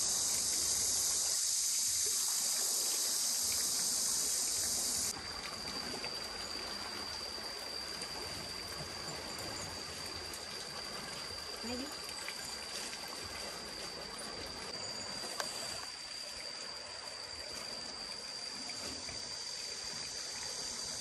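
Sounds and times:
loud high hiss: 0:00.0 - 0:05.1
flowing water rushing: 0:00.0 - 0:21.0.

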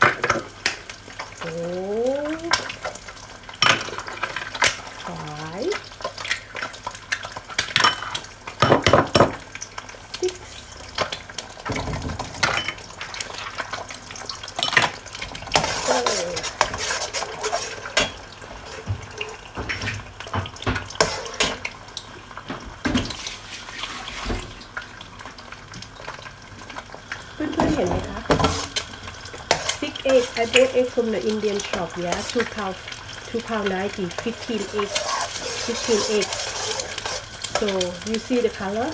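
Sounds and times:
metal spoon scraping a wok: 0:15.5 - 0:18.2, 0:34.2 - 0:37.8.

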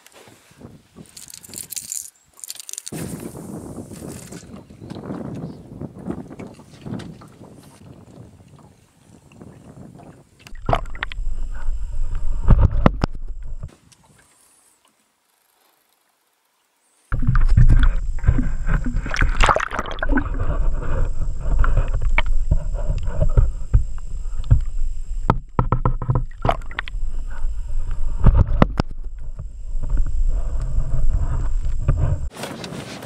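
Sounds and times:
faint high whine: 0:10.5 - 0:13.7, 0:16.2 - 0:32.3
water rushing underwater: 0:10.5 - 0:13.7, 0:17.1 - 0:32.3.

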